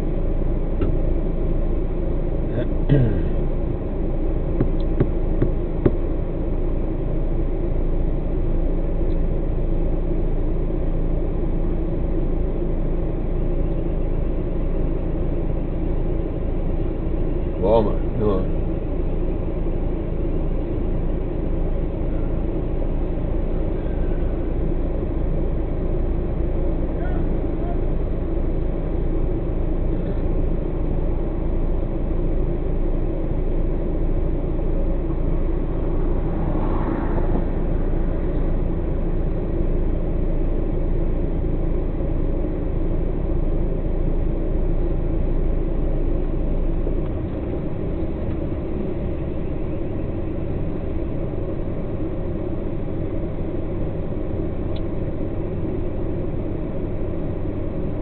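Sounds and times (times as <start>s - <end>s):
diesel truck engine idling: 0.0s - 58.0s
short rush of noise: 35.6s - 39.4s.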